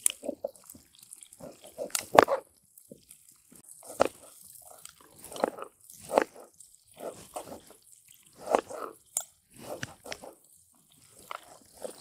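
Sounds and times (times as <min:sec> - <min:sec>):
knife slicing on cutting board: 0:05.2 - 0:06.4, 0:08.4 - 0:08.9, 0:09.6 - 0:10.4.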